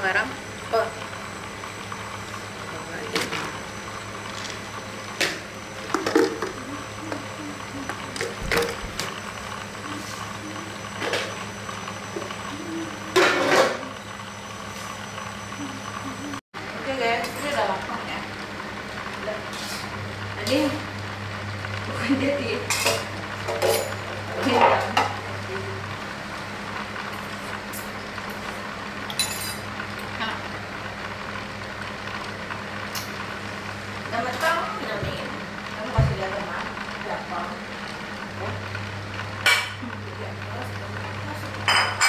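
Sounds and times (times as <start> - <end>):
low mechanical hum: 0.0 - 42.0
spatula scraping wok: 19.5 - 20.0.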